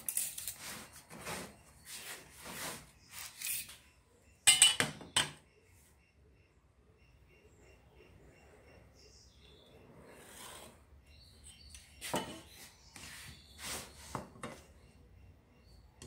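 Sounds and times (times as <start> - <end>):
tape measure scraping and rustling: 0.0 - 3.9, 12.0 - 14.2
metal tools knocking on wood: 4.5 - 5.4, 12.0 - 12.5.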